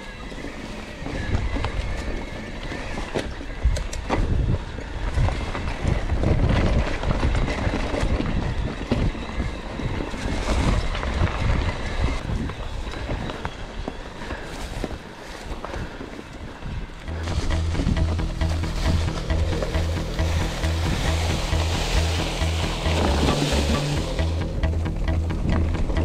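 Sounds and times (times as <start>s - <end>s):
bike rolling over rough ground: 0.0s - 22.1s
wind buffeting microphone: 1.0s - 18.0s.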